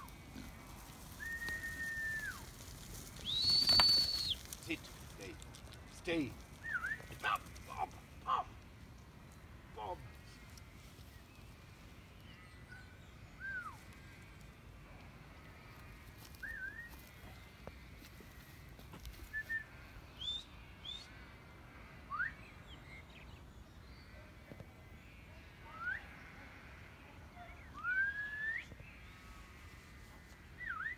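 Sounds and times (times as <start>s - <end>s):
short whistled notes: 3.3s - 4.4s.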